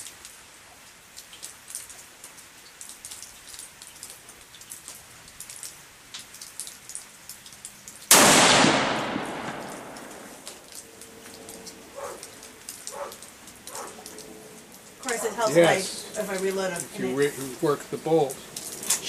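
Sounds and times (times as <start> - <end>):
faint ticking and patter: 0.0 - 8.1, 9.4 - 19.0
rifle shot with echo: 8.1 - 10.4.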